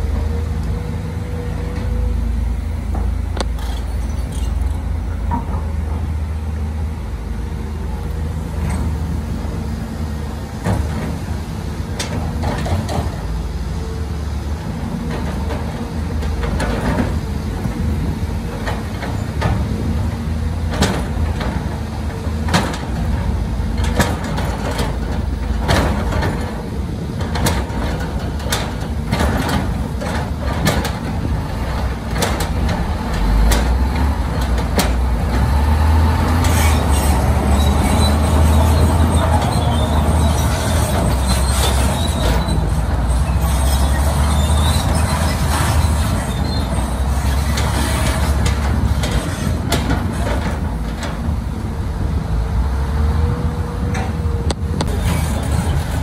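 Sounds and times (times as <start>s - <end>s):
heavy diesel engine labouring: 0.0s - 56.0s
broad rushing noise: 47.0s - 56.0s.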